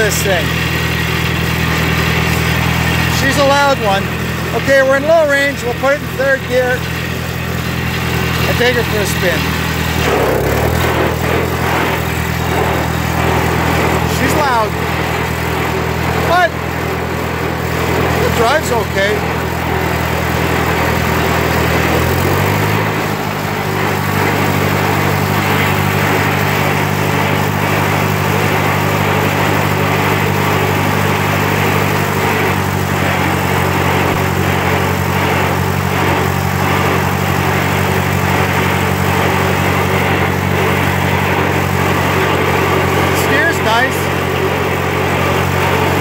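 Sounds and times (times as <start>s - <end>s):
gear whine: 0.0s - 46.0s
tractor engine running: 0.0s - 46.0s.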